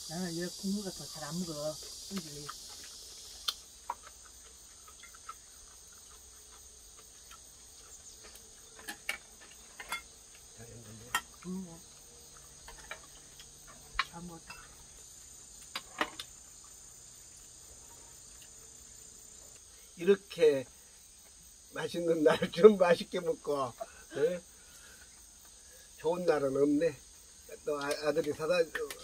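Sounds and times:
insects chorus: 0.0s - 29.0s.

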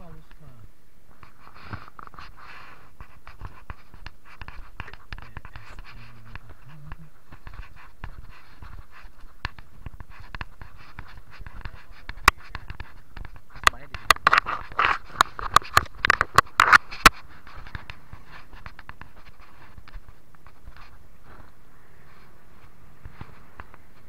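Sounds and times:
small clicks and crackles: 0.1s - 24.0s.

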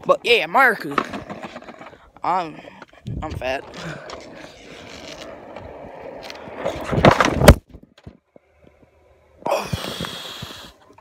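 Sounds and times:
skateboard wheels rolling on asphalt: 0.0s - 11.0s
skateboard crash knocks on pavement: 6.7s - 8.2s.

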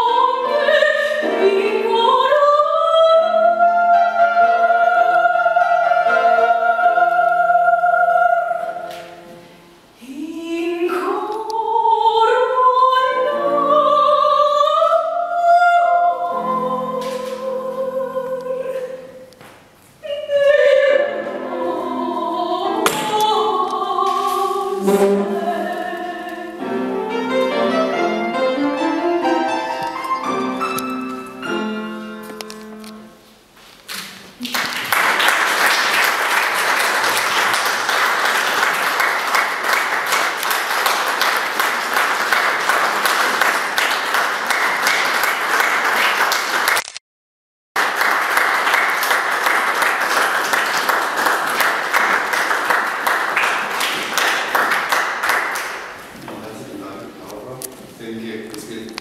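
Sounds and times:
classical music: 0.0s - 19.4s, 20.0s - 46.5s
audience applauding: 34.4s - 46.9s, 47.8s - 56.0s.

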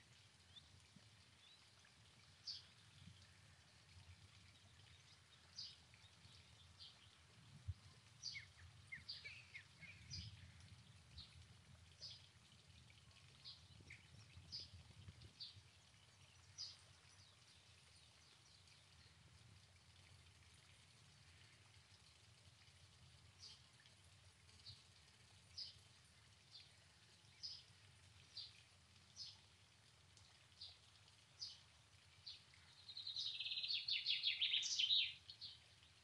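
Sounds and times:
small birds chirping: 1.4s - 11.4s, 13.0s - 19.2s, 26.5s - 29.4s, 30.5s - 36.0s.

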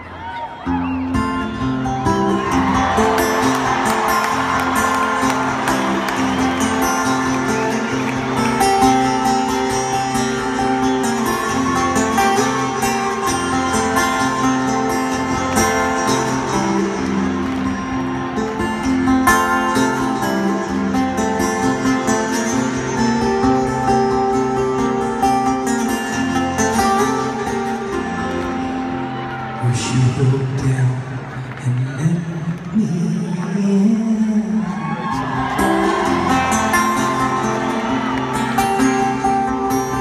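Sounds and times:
fingerpicked acoustic guitar: 0.7s - 30.9s, 35.2s - 40.0s.

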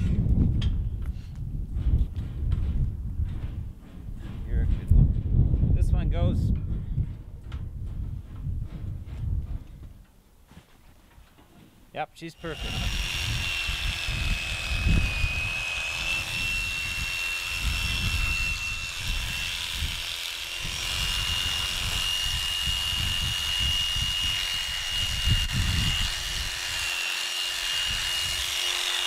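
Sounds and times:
electric clippers whining: 12.4s - 29.0s.

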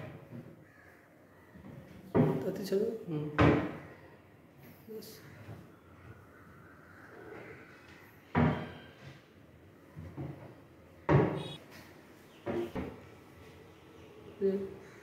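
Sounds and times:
cabinet doors knocking shut: 11.1s - 11.6s.

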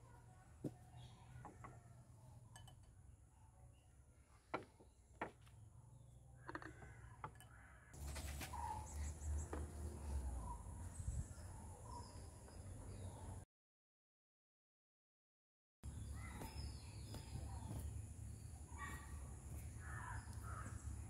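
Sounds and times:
light glass clinks: 2.4s - 3.1s.

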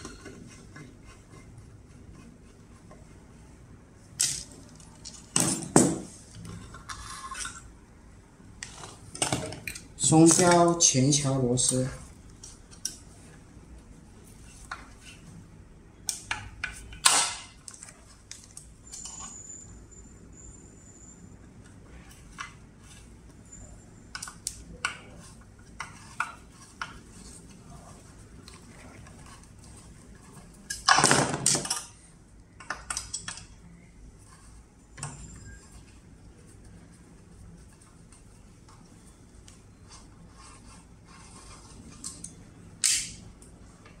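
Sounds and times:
faint high steady tone: 18.8s - 22.0s, 34.8s - 37.0s.

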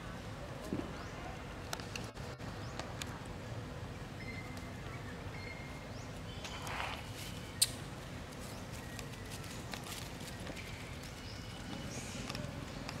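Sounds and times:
dry leaves rustling underfoot: 6.2s - 12.9s.

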